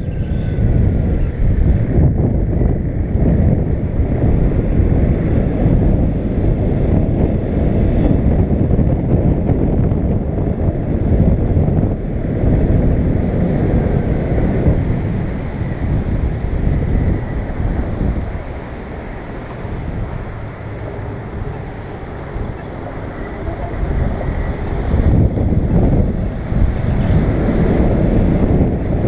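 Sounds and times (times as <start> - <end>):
wind buffeting microphone: 0.0 - 29.0
faint high steady tone: 20.9 - 24.7.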